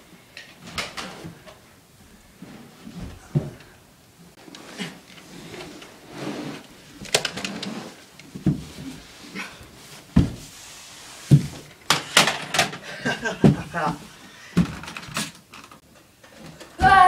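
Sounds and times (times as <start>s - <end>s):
body thumping on wooden floor: 2.8s - 3.7s, 8.3s - 9.1s, 10.0s - 10.6s.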